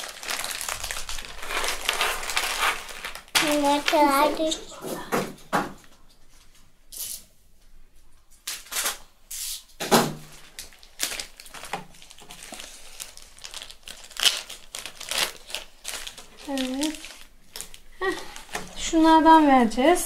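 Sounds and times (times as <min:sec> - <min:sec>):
plastic packaging tearing: 0:00.0 - 0:04.6, 0:08.4 - 0:19.0
plastic packaging crinkling: 0:00.0 - 0:04.7, 0:08.4 - 0:19.5.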